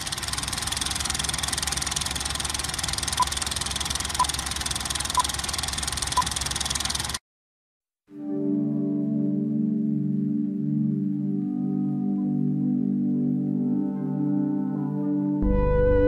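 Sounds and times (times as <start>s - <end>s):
film projector clattering: 0.0s - 7.2s
short countdown beeps: 5.1s - 5.3s.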